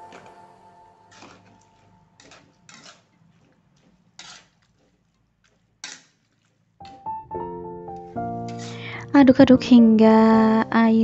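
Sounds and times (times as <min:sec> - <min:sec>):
background music: 0:00.0 - 0:02.3, 0:06.8 - 0:11.0
spatula scraping wok: 0:00.0 - 0:06.8, 0:08.3 - 0:09.1.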